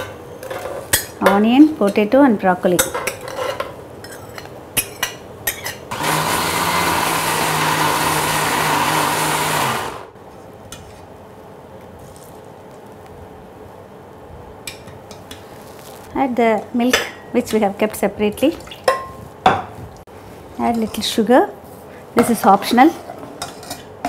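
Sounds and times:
mixer grinder motor pureeing: 5.9s - 10.1s.

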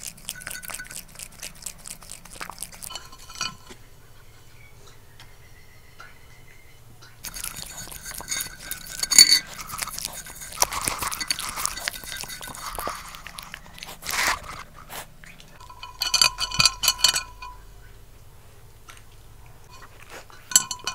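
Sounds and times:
dog licking and chewing: 0.0s - 3.8s, 7.2s - 17.6s, 18.9s - 20.9s
skewers rattling against plate: 7.2s - 13.2s, 15.6s - 17.6s.

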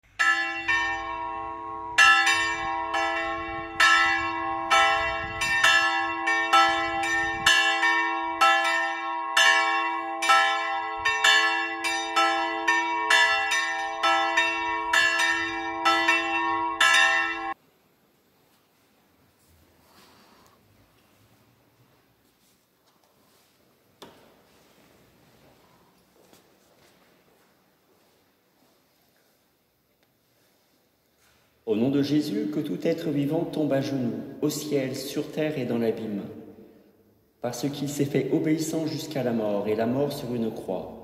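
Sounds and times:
church bells ringing: 0.0s - 17.6s, 37.6s - 41.0s.

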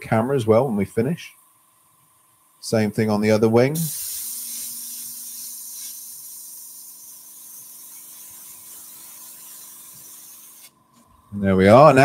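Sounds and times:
faint steady hum: 0.0s - 12.0s
airbrush air hissing: 3.7s - 10.8s.

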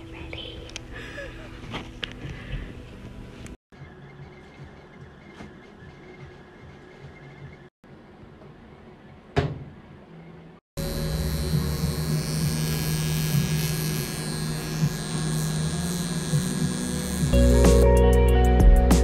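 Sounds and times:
electric buzz with hiss: 10.8s - 17.9s
music with deep bass: 14.8s - 19.0s.

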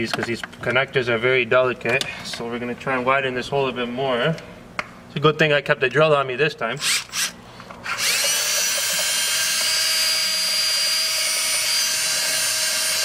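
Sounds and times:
power drill whining: 6.8s - 13.0s.

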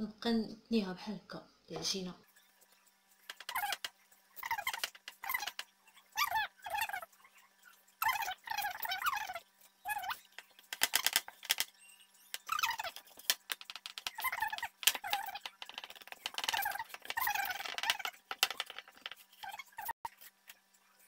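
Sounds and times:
hands working dough clicks: 3.2s - 5.7s, 8.0s - 20.6s.

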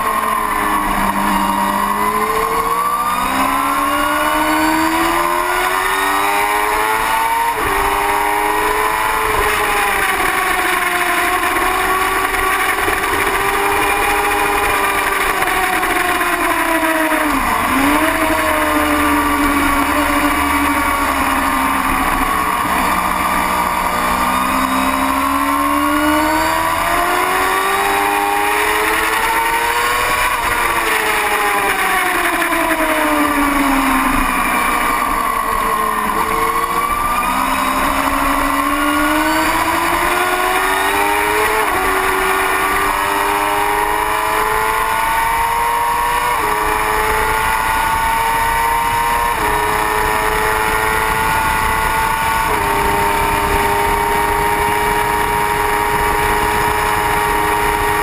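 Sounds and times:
motorcycle engine revving: 0.0s - 58.0s
wind rush: 49.2s - 58.0s.

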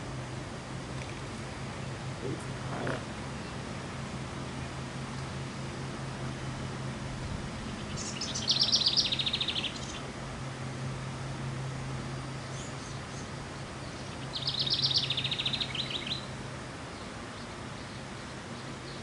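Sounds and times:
wren singing trilled phrases: 7.5s - 10.1s, 12.1s - 19.0s.

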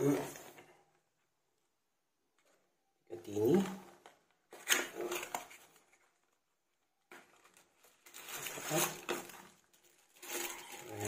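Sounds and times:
cardboard and plastic wrap rustling: 3.3s - 11.0s.

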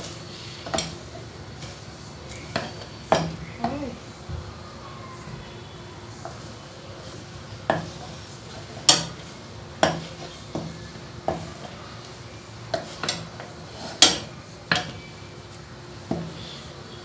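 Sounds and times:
wooden spoon knocking on pot: 7.6s - 8.0s, 9.8s - 11.7s.

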